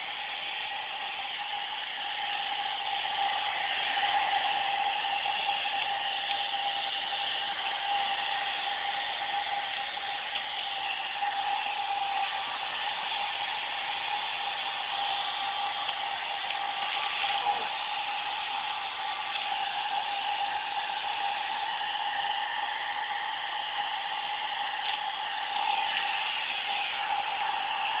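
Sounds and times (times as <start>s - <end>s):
hair dryer whine: 0.0s - 28.0s.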